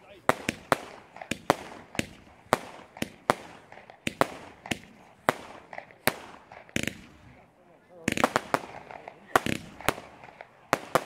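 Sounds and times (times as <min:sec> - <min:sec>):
firework bangs with echo: 0:00.0 - 0:07.4, 0:08.0 - 0:11.0.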